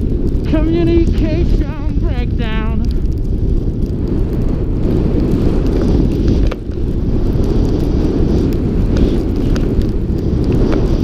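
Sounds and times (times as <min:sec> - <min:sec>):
wind buffeting microphone: 0:00.0 - 0:11.0.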